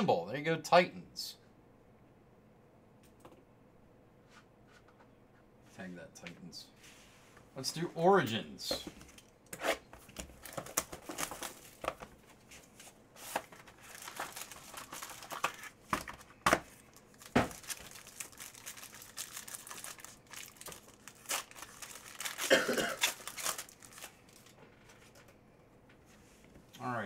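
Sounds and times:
foil wrapper crinkling and tearing: 13.4 - 24.6.

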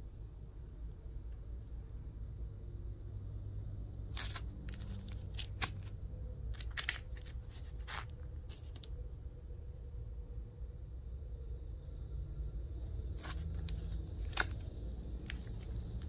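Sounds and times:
steady low hum: 0.0 - 16.0
plastic sleeves crinkling: 4.2 - 9.0, 13.2 - 16.0.

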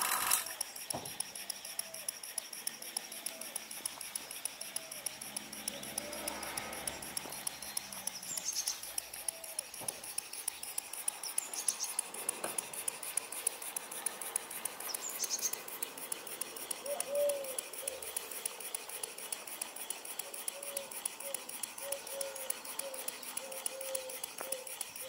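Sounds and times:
model steam engine ticking: 0.0 - 25.0
birds chirping: 0.7 - 25.0.

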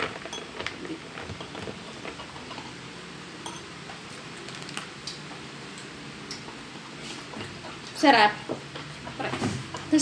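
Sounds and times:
spoon clinking in a glass: 3.4 - 3.7.

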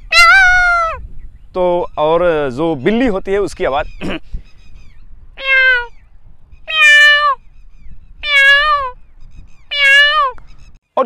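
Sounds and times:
man imitating cat meows: 0.1 - 1.0, 5.4 - 5.9, 6.7 - 7.4, 8.2 - 9.0, 9.7 - 10.4.

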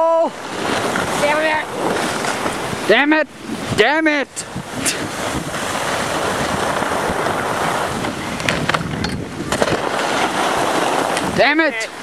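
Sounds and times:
wind on microphone: 0.0 - 12.0
skis hissing over snow: 0.6 - 3.0, 5.0 - 8.2, 9.8 - 11.5.

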